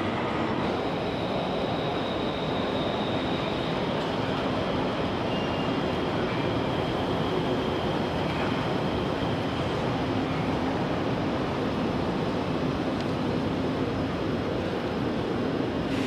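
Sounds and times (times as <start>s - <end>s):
faint high whine: 0.0s - 10.9s
train rolling past: 0.0s - 16.0s.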